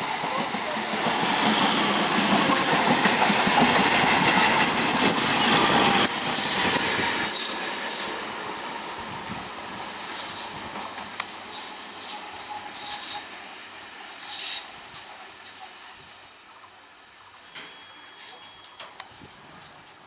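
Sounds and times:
distant train: 0.0 - 20.0
train wheels clattering over joints: 0.2 - 8.1
train wheels squealing: 3.8 - 8.2, 9.9 - 10.6, 11.4 - 13.3, 14.1 - 15.1, 17.4 - 19.0.

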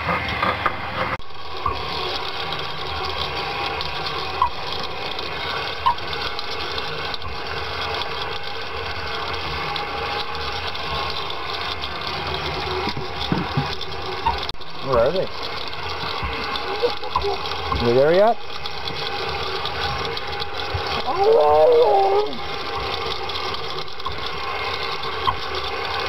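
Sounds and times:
motor running: 0.0 - 26.0.

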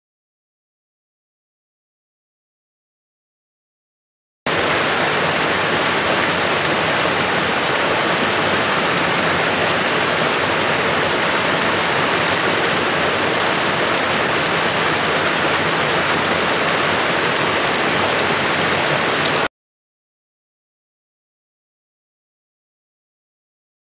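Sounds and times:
stream rushing over boulders: 4.5 - 19.5.

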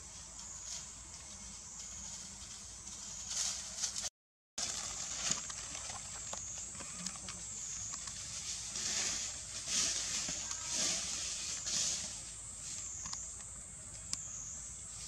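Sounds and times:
rustling in dry leaves: 0.0 - 13.4
high-pitched insect drone: 6.4 - 15.0.

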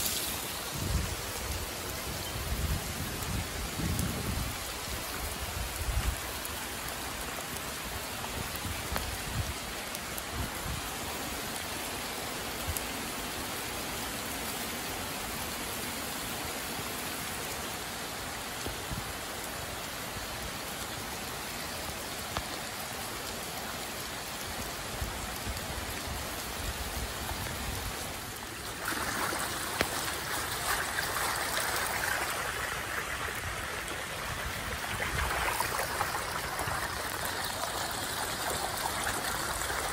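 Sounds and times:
floodwater rushing over street: 0.0 - 39.9
heavy rain on a road: 0.0 - 39.9.

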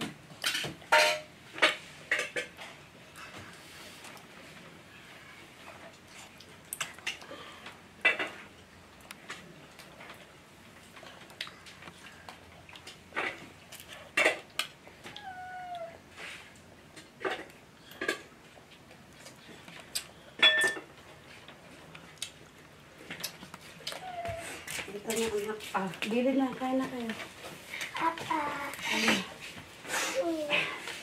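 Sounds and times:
utensils clinking on plates: 0.4 - 2.6, 20.4 - 20.9
cat meowing: 15.0 - 16.0, 23.9 - 24.6.

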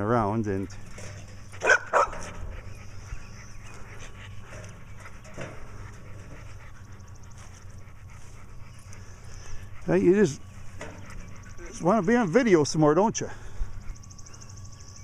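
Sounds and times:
dog panting: 0.6 - 12.6
dog barking: 1.6 - 2.3.

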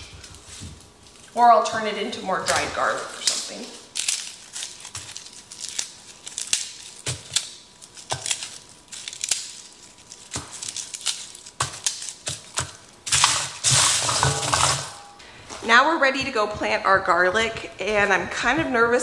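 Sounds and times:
papery garlic skins crackling: 0.0 - 14.8.

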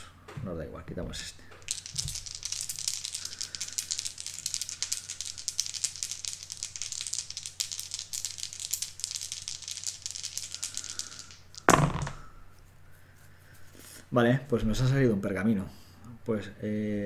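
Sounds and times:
dice rattling: 1.6 - 12.3.

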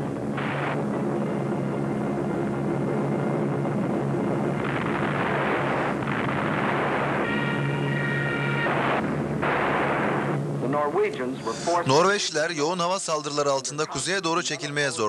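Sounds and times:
rushing noise: 0.0 - 10.8
propeller engines droning: 0.0 - 12.4.

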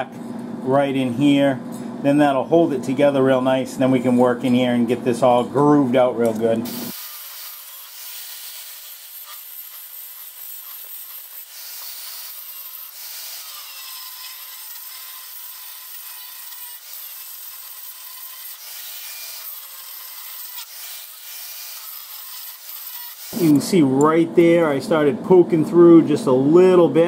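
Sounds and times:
angle grinder grinding metal: 6.6 - 23.8.

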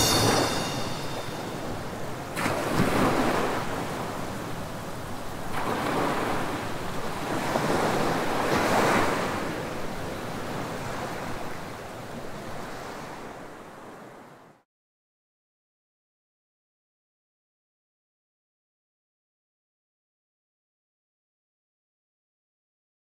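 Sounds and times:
waves breaking on sandy beach: 1.1 - 14.6.

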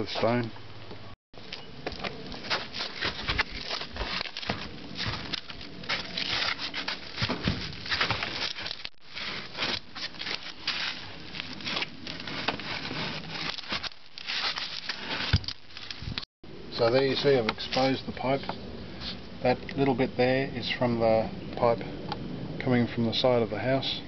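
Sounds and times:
rocks and gravel scraping: 1.4 - 19.2.

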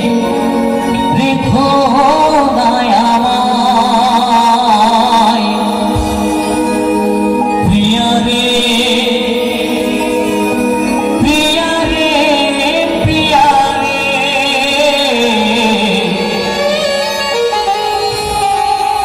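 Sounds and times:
man singing through microphone: 0.0 - 19.0
drum strokes: 5.9 - 7.9.

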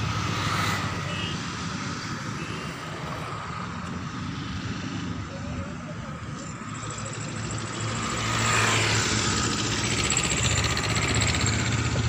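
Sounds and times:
engine running: 3.5 - 12.0.

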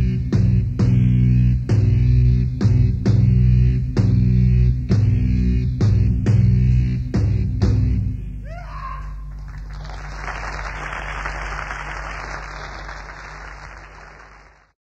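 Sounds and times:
steady low hum: 0.0 - 14.6
audience applause: 9.3 - 14.8.

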